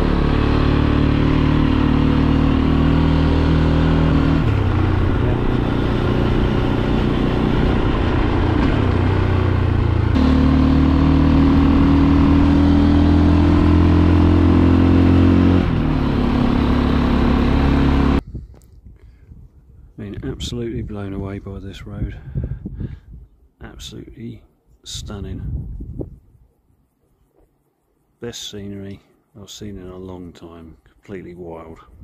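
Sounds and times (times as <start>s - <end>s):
motorcycle engine running: 0.0s - 18.2s.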